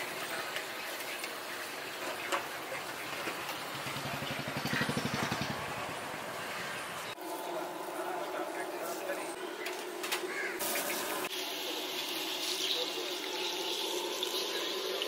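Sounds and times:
street background noise: 0.0 - 15.0
small engine puttering: 2.8 - 7.0.

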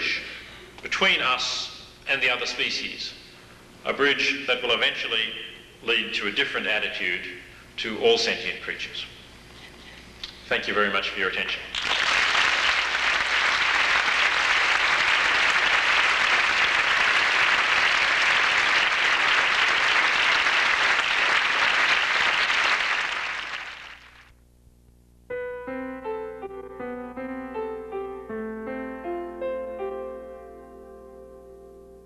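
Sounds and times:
audience applauding: 11.7 - 24.3
music of single pitched notes: 25.3 - 32.0.

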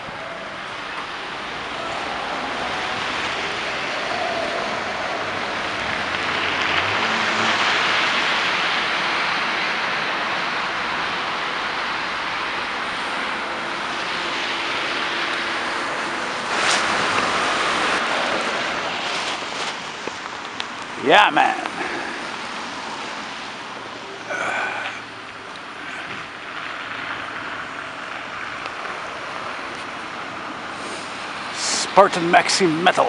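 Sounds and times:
street traffic: 0.0 - 33.0.

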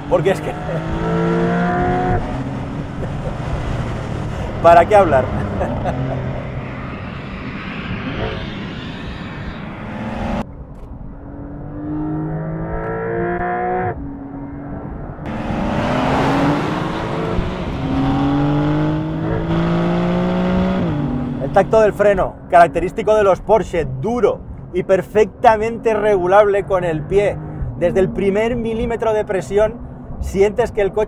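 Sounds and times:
car engine accelerating hard: 0.0 - 10.4, 11.2 - 22.0.

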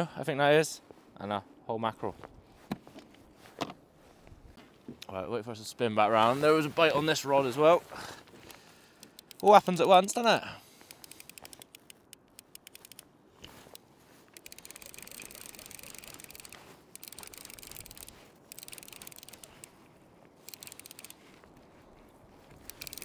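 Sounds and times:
fishing reel clicking: 9.0 - 9.7, 10.8 - 13.1, 13.7 - 19.7, 20.4 - 21.2, 22.6 - 23.0.

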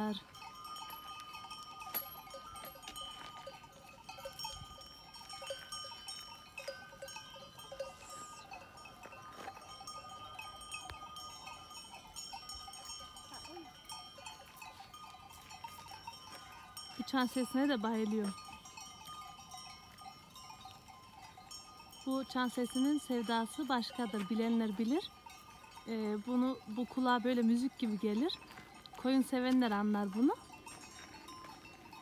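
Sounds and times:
animal bells clanking: 0.0 - 32.0.

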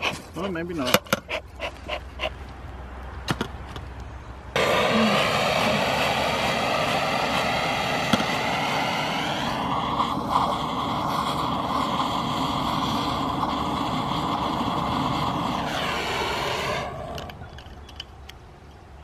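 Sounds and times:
gas torch flame hissing: 4.6 - 17.6.

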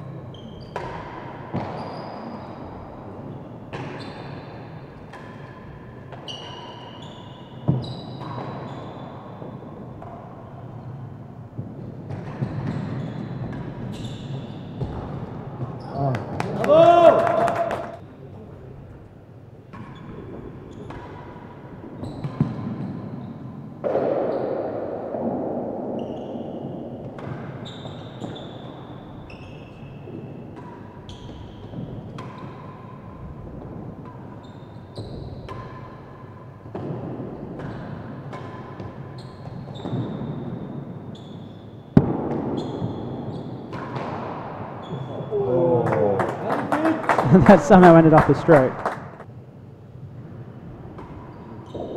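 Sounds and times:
ball striking walls and floor: 0.3 - 4.3, 4.9 - 16.7, 19.7 - 41.2, 41.9 - 45.3
racket hitting ball: 23.8 - 28.4, 42.0 - 44.8.

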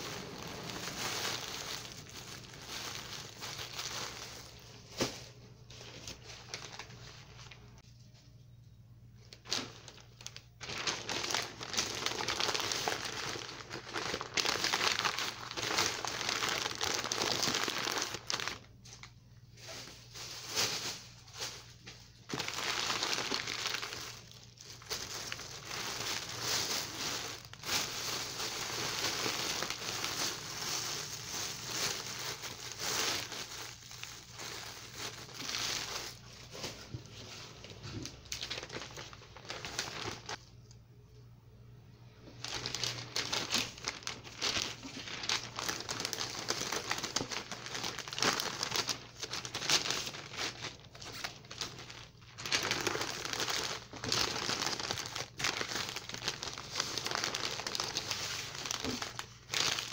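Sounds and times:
newspaper crinkling and rustling: 0.0 - 7.8, 9.3 - 40.4, 42.4 - 59.9
plastic bag crinkling: 0.0 - 7.8, 9.2 - 40.4, 42.2 - 59.9.

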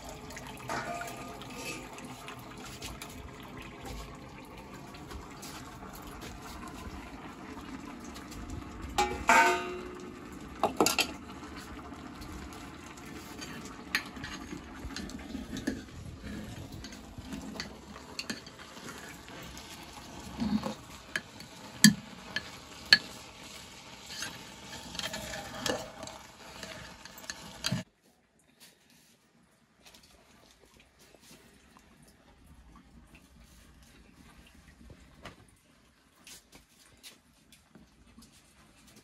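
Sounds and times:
metal pots and utensils clinking: 0.4 - 3.0, 8.9 - 27.8
spoon stirring and scraping in a pot: 0.7 - 3.2, 10.6 - 27.9.

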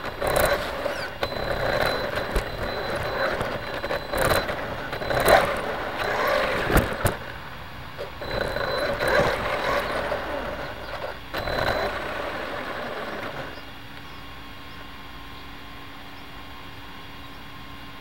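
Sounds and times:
sharp clicks and knocks: 0.0 - 7.4
high-pitched electronic tone: 0.0 - 13.7
street vehicle noise: 0.0 - 18.0.

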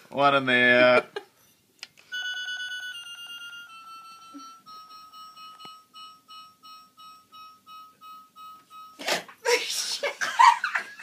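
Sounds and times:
electronic beeping: 2.1 - 9.0.

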